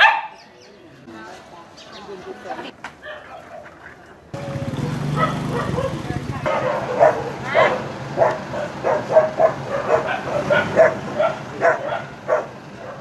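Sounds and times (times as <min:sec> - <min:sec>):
dogs barking: 0:00.0 - 0:00.5, 0:03.0 - 0:04.1, 0:04.7 - 0:13.0.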